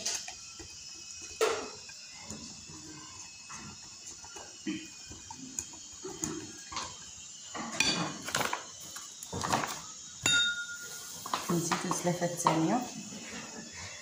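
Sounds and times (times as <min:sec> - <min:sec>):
knocks and clinks against glass: 0:10.2 - 0:10.9.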